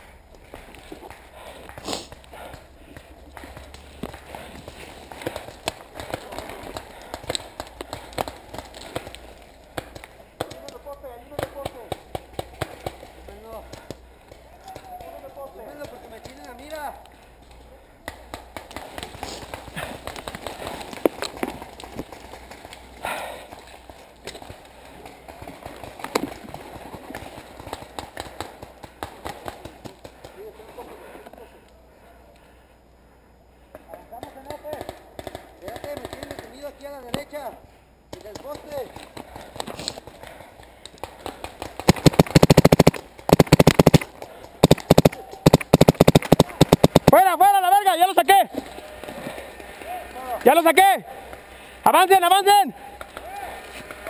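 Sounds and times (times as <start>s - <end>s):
rustling: 38.4s - 47.2s
sharp knocks and pops: 40.9s - 47.2s
paintball marker firing: 41.0s - 47.2s.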